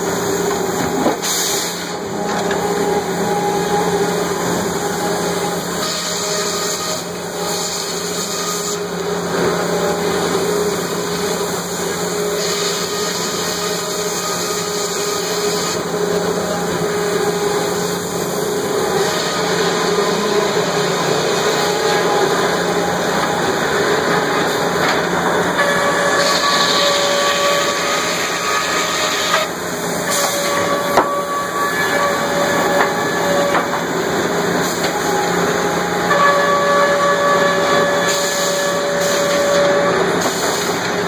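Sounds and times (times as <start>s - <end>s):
high machinery hiss: 0.0s - 41.0s
sawmill machinery humming: 0.0s - 41.0s.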